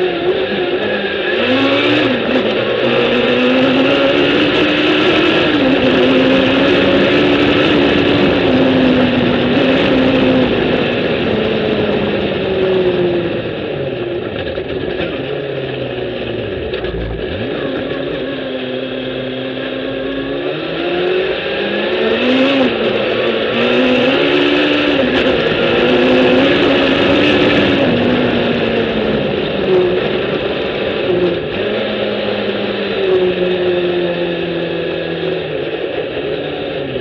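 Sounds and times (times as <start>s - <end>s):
motorcycle engine revving: 0.0s - 37.0s.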